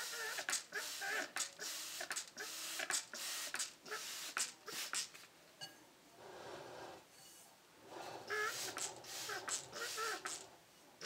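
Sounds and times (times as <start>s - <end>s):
spray bottle hissing sprays: 0.2s - 5.2s, 8.3s - 10.5s.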